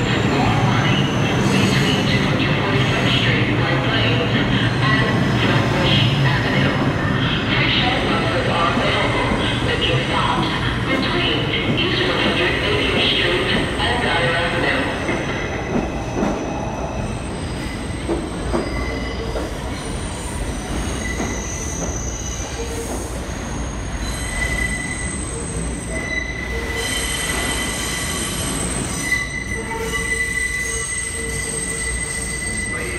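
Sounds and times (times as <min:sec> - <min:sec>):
subway train rumbling and clattering: 0:00.0 - 0:32.9
train wheels squealing: 0:11.9 - 0:32.9.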